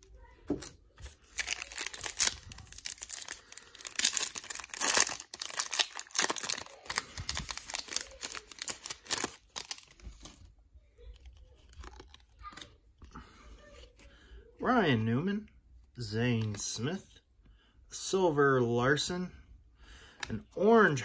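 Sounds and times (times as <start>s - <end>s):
foil wrapper tearing and crinkling: 1.0s - 10.4s, 11.2s - 12.7s.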